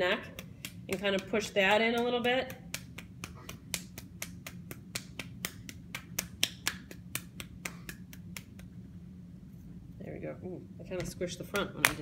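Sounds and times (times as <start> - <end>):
hands slapping soft clay: 0.2 - 8.8.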